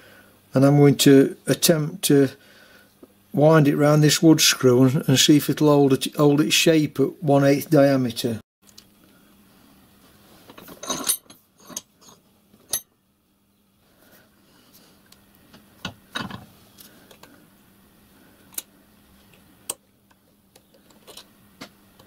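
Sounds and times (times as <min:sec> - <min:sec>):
metal tools clattering: 0:10.5 - 0:12.9.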